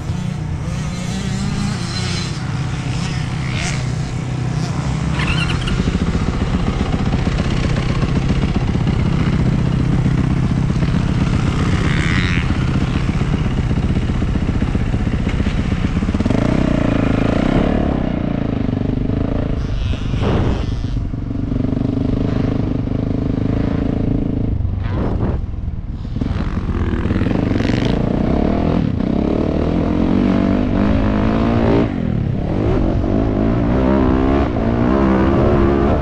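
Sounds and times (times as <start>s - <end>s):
motocross bike engine running: 0.0s - 24.5s.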